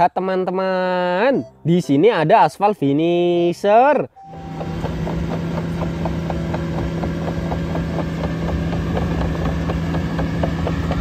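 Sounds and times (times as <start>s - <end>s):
diesel engine running: 4.2s - 11.0s
crawler tracks clicking: 4.3s - 11.0s.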